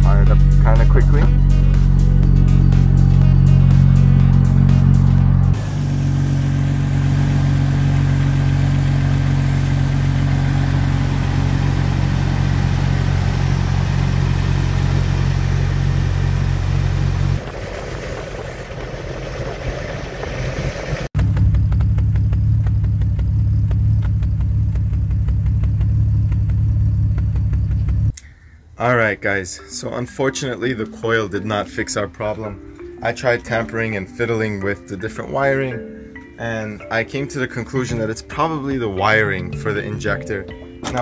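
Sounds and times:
misfiring engine idling: 0.0s - 28.1s.

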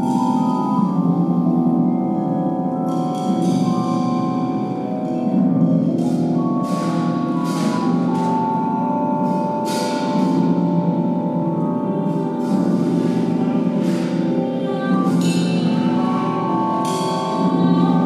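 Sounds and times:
low sustained tones: 0.0s - 18.0s
vibraphone mallet notes: 0.0s - 18.0s.

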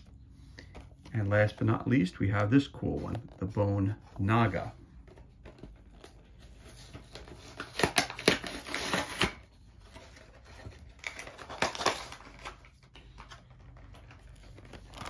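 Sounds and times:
plastic packaging crackling: 10.8s - 15.0s.

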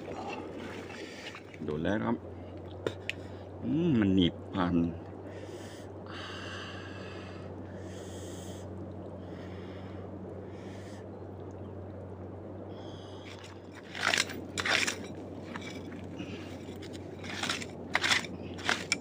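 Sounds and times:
hand digging in mud: 13.3s - 19.0s.

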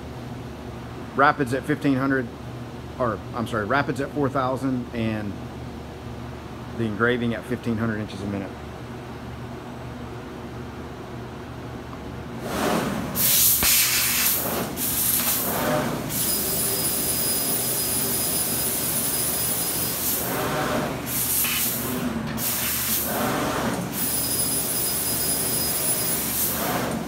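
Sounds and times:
laser cutter hiss and whine: 13.2s - 27.0s.

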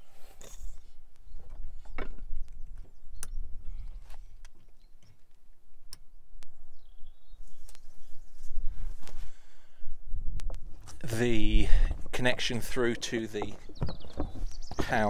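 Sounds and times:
wind rumble on microphone: 6.2s - 15.0s.

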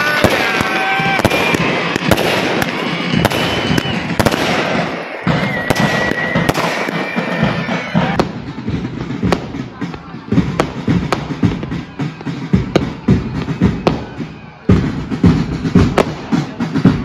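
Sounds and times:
fireworks bangs and crackles: 0.0s - 17.0s
music playing: 0.0s - 17.0s.

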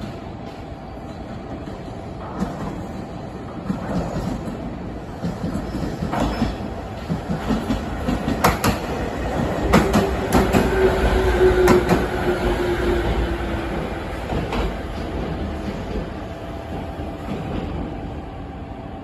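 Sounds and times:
train wheels clacking over rail joints: 5.2s - 10.9s.

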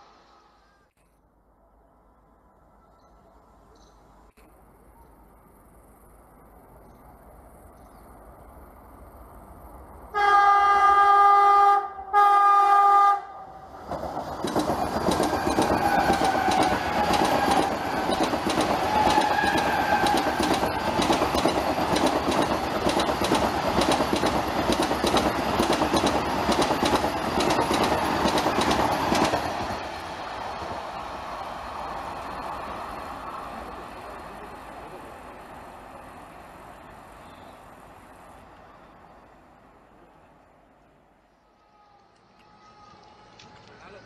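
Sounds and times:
train rumbling past: 0.0s - 0.9s, 1.5s - 44.0s
train horn blasts: 10.1s - 13.5s, 18.9s - 20.3s
wheels clacking over rail joints: 13.8s - 30.9s.

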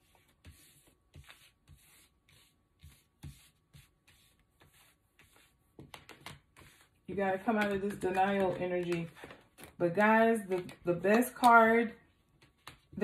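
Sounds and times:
cards rustling and tapping on cloth: 5.7s - 13.0s.

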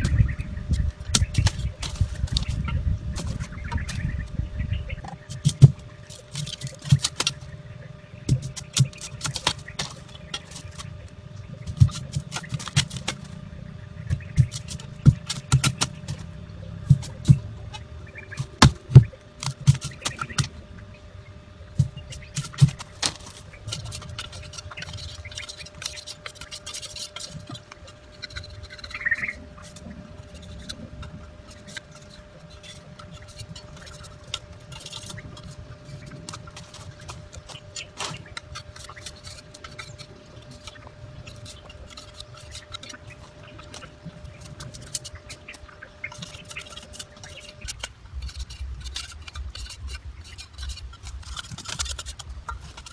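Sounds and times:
knife scraping bamboo strips: 5.0s - 7.5s, 8.3s - 11.0s, 11.6s - 13.4s, 14.0s - 20.5s, 21.7s - 52.9s
bamboo cracking: 11.6s - 13.4s, 14.0s - 16.3s, 21.7s - 52.9s.

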